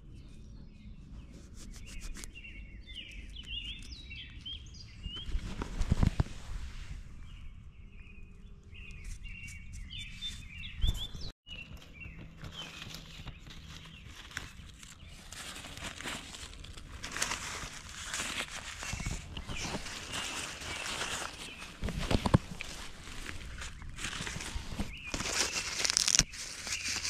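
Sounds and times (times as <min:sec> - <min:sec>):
small birds chirping: 0:00.0 - 0:06.3, 0:07.2 - 0:27.0
dry leaves rustling and crackling: 0:12.3 - 0:27.0.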